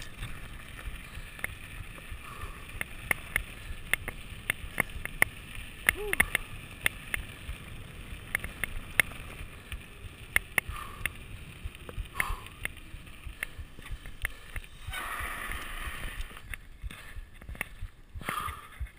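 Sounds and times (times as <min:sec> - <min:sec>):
bike rattling and ticking: 0:00.0 - 0:18.9
bike tyres rumbling on gravel: 0:00.0 - 0:18.9
tyre hiss: 0:13.6 - 0:17.2.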